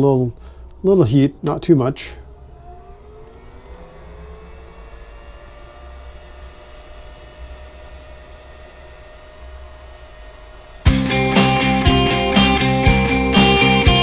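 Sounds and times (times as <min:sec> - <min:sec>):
heat gun motor whirring: 0:02.2 - 0:11.0.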